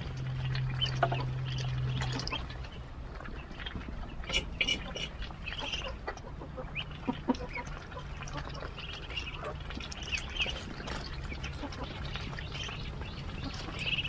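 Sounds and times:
ducklings peeping: 0.0s - 14.0s.

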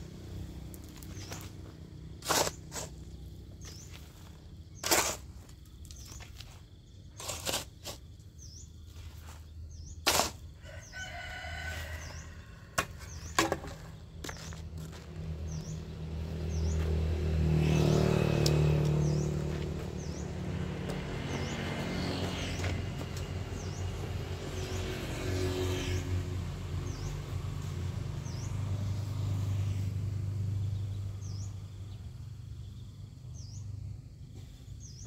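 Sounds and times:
shovel scraping soil: 2.2s - 15.7s
rooster crowing: 10.6s - 12.8s
low engine hum: 11.9s - 35.0s.

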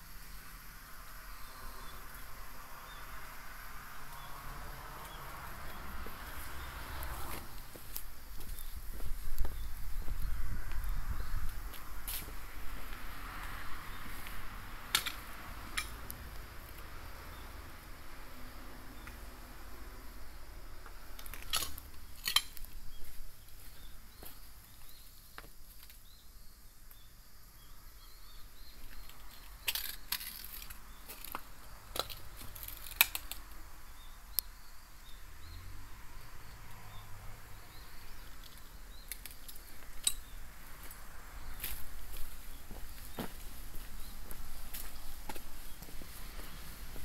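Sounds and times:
footsteps crunching over debris: 7.3s - 13.0s, 21.2s - 25.9s, 40.8s - 47.0s.

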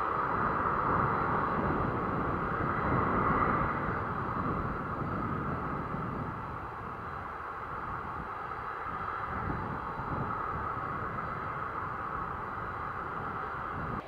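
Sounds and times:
jet engines running: 0.0s - 14.0s.

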